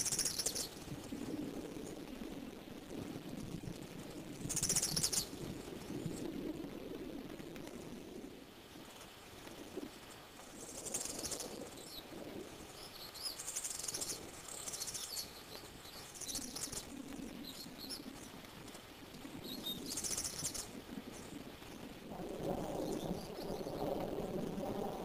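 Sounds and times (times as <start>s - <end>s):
bird chirps: 0.0s - 0.8s, 4.5s - 5.3s, 12.8s - 16.8s, 19.4s - 21.3s
faint low rustle: 0.0s - 25.0s.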